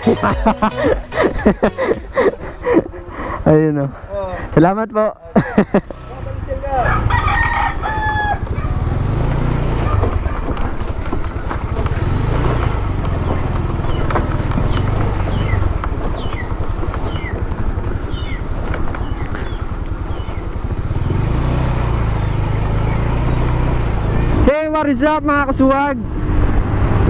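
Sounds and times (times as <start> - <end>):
motorcycle engine running: 0.0 - 3.5, 5.6 - 27.0
rooster crowing: 6.8 - 8.9.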